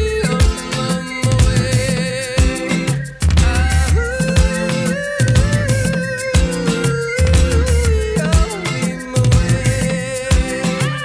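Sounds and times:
music with steady beat: 0:00.0 - 0:11.0.

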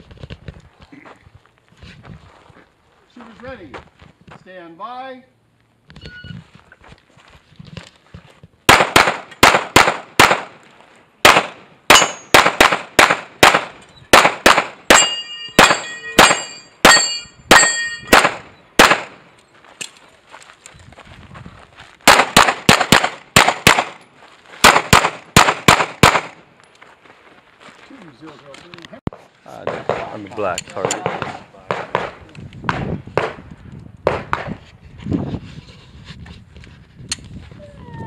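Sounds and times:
pistol shots: 0:08.7 - 0:10.6, 0:11.2 - 0:19.2, 0:22.0 - 0:24.0, 0:24.6 - 0:26.4, 0:29.1 - 0:33.4, 0:34.0 - 0:34.6
steel targets clanging: 0:11.9 - 0:12.3, 0:14.9 - 0:18.1.

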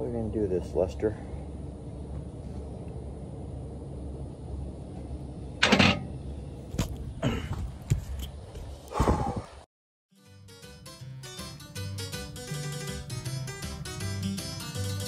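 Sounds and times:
steady low rumble: 0:00.0 - 0:09.7.

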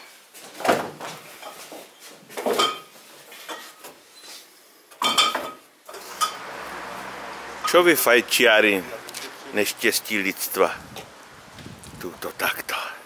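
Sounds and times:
glass bottles clinking: 0:05.0 - 0:06.6.

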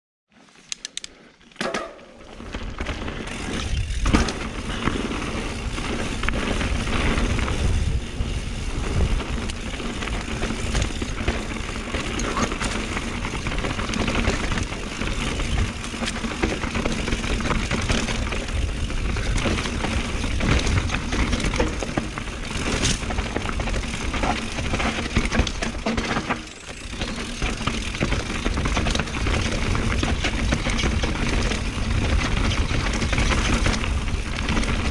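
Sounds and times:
bike rattling and knocking: 0:01.6 - 0:34.9
tyre and wind rush: 0:02.3 - 0:25.9.

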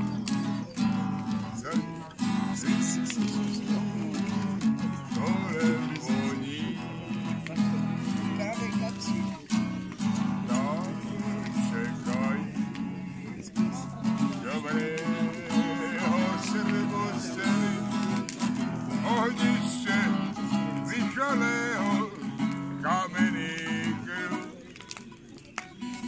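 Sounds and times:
acoustic guitar strumming: 0:00.0 - 0:26.0.

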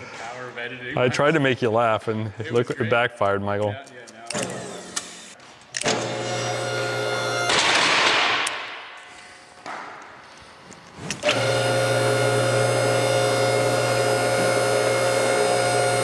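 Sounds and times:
electric motor humming: 0:04.3 - 0:07.5, 0:11.2 - 0:16.0.

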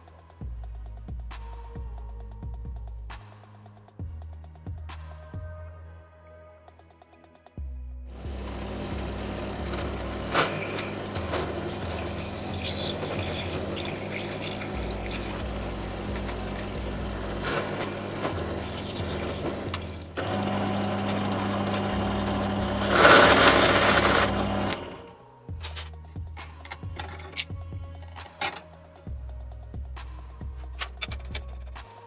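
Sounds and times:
drill press motor hum: 0:08.2 - 0:25.2
drill bit cutting metal: 0:08.4 - 0:25.1.

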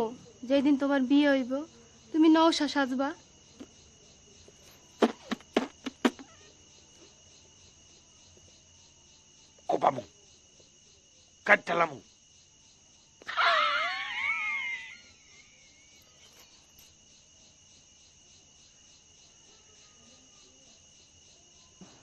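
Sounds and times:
faint crickets chirring: 0:00.0 - 0:22.0
loud wavering scream: 0:13.2 - 0:15.4.

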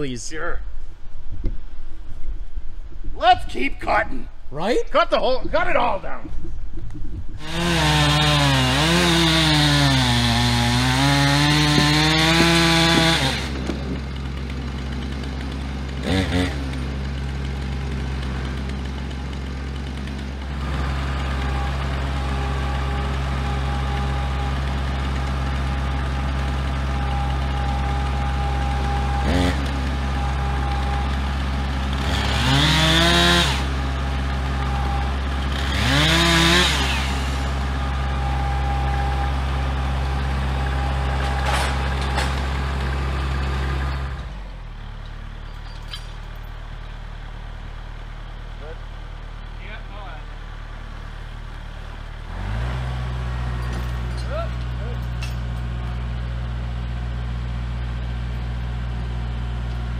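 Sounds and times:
tractor diesel engine idling: 0:02.7 - 0:59.9
chainsaw cutting through log: 0:07.4 - 0:44.8, 0:52.2 - 0:54.8.

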